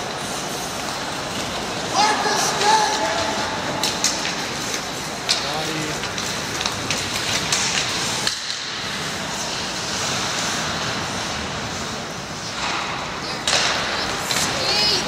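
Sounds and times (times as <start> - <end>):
hockey sticks and puck clacking: 0.0 - 15.0
skates scraping on ice: 0.0 - 15.0.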